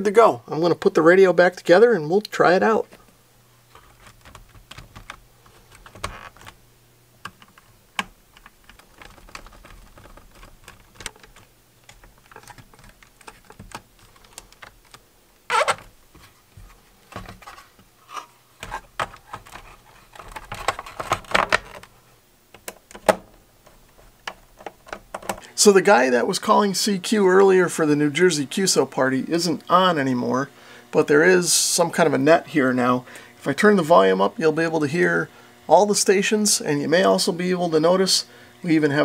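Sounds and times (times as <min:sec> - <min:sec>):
plastic clicking and rattling: 0:03.8 - 0:06.6, 0:07.2 - 0:15.9, 0:17.0 - 0:17.6, 0:18.6 - 0:21.9, 0:22.5 - 0:25.4.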